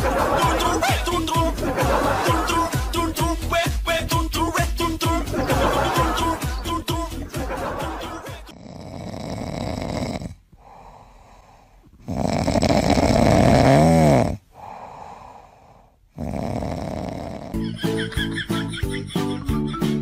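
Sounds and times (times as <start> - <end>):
kitten snoring: 8.5 - 17.6.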